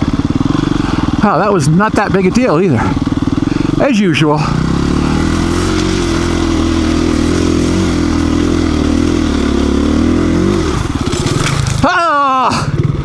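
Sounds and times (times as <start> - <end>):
dirt bike engine under load: 4.4 - 12.1.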